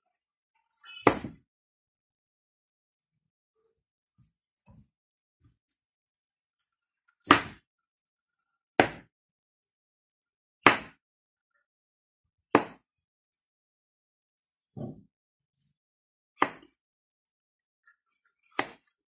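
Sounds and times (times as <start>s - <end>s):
knife chopping on wooden board: 7.3s - 7.6s, 8.8s - 9.1s, 10.6s - 11.0s, 12.5s - 12.8s, 16.4s - 16.7s, 18.5s - 18.8s.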